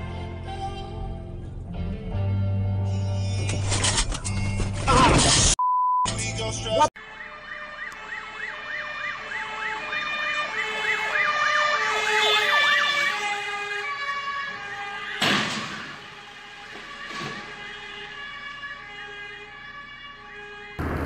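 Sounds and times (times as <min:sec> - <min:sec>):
siren yelping: 0:07.0 - 0:21.0
loud horn blast: 0:11.7 - 0:21.0.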